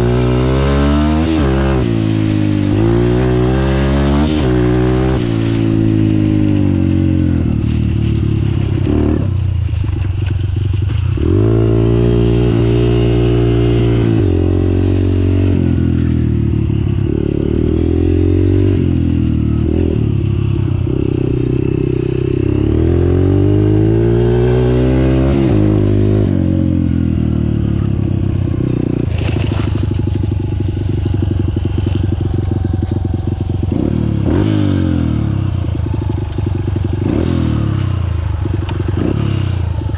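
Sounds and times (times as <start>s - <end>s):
dirt bike engine revving: 0.0s - 9.4s, 11.2s - 39.9s.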